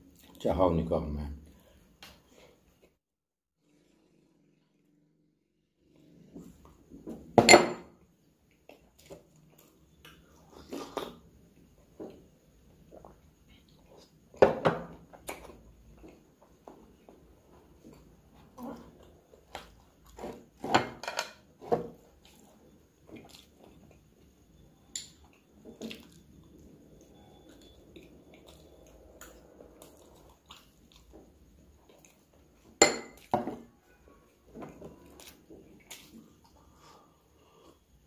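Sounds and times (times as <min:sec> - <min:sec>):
quiet chewing: 0:22.1 - 0:24.3, 0:25.2 - 0:33.3
metal spoon clinking on dishes: 0:32.8 - 0:33.5.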